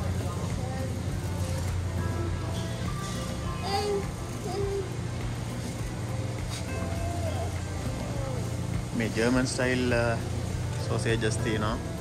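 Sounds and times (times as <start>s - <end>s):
background music: 0.0s - 12.0s
faint voices: 0.0s - 12.0s.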